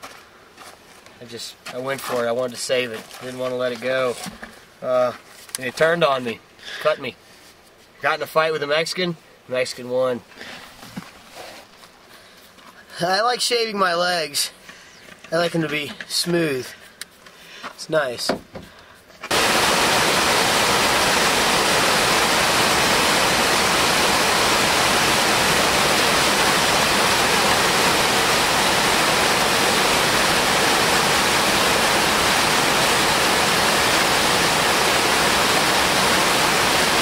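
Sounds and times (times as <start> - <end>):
waterfall rushing: 19.3 - 37.0.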